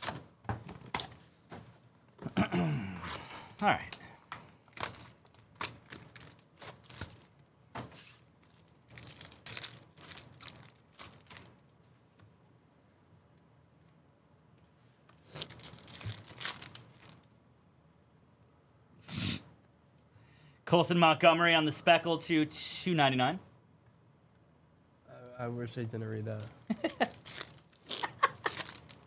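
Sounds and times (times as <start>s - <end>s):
wrappers tearing and crinkling: 4.6s - 7.4s, 8.0s - 11.7s, 15.2s - 17.4s, 26.3s - 29.0s.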